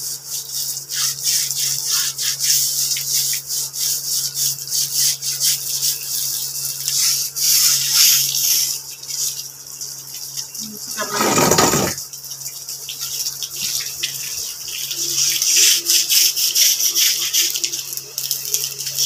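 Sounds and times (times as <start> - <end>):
brush scrubbing wet strapping: 11.0 - 12.0.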